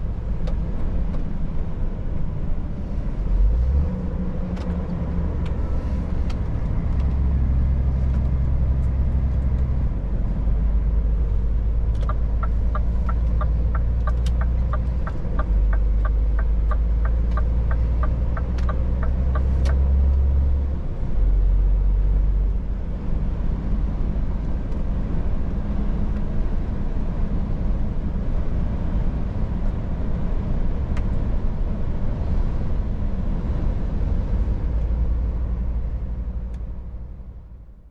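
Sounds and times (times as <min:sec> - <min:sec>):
truck diesel engine rumble: 0:00.0 - 0:37.9
turn signal ticking: 0:11.7 - 0:20.2.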